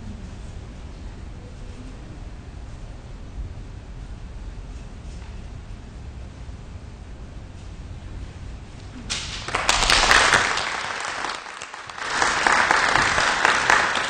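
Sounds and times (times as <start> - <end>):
low room hum: 0.0 - 14.0
congregation applauding: 9.1 - 14.0.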